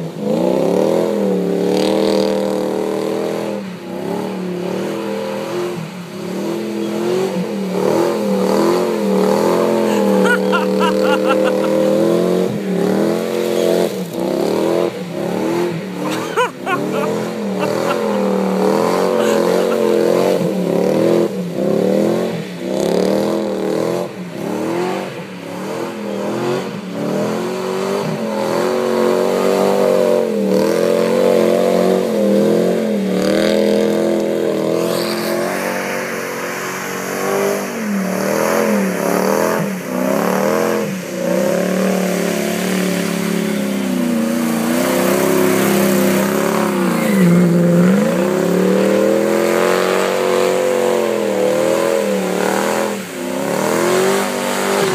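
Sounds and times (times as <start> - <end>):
truck engine revving: 0.2 - 54.9.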